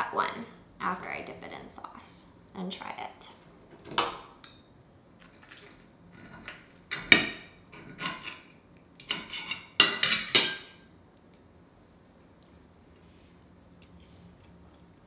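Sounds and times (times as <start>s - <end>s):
knife and fork clinking: 6.9s - 10.8s.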